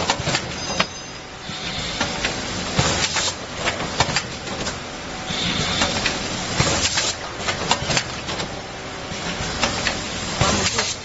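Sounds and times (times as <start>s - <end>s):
packaging machine clacking: 0.0s - 1.0s, 2.0s - 4.8s, 5.7s - 8.6s, 9.2s - 11.0s
steady mechanical hiss: 1.2s - 3.7s, 4.4s - 7.6s.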